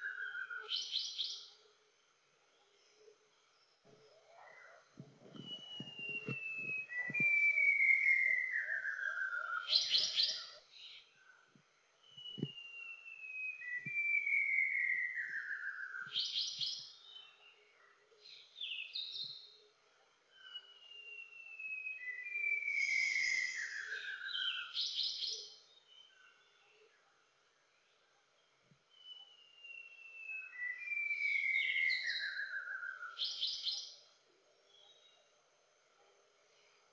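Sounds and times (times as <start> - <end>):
bird song whistle: 0.0 - 1.6, 3.7 - 11.1, 12.0 - 17.7, 20.3 - 26.6, 28.9 - 35.2.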